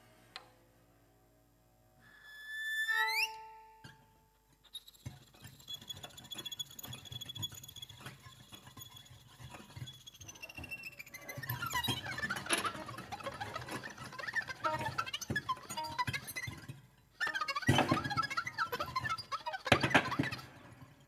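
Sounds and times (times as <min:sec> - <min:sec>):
high violin note sliding upward: 0:02.1 - 0:03.8.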